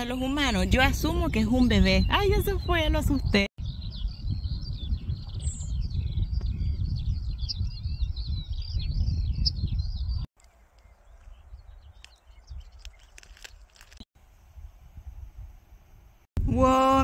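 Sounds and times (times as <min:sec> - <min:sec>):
songbirds chirping and singing: 0:00.0 - 0:13.3.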